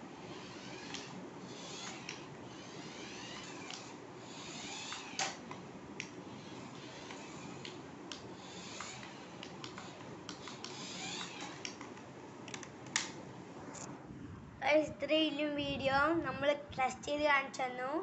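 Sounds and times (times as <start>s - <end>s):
toy car motor whirring: 0.1s - 5.4s, 6.3s - 11.8s.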